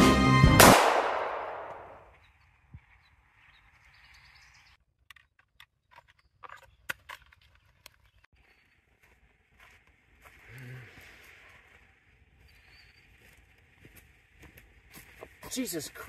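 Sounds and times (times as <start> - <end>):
gunshot echo: 0.6 - 2.1
footsteps on dry stubble: 7.3 - 16.0.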